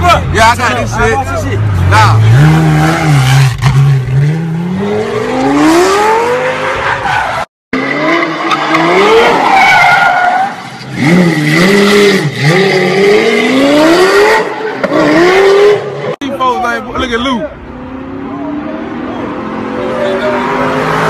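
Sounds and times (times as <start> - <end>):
car engine revving: 0.2 - 6.8, 10.4 - 16.2.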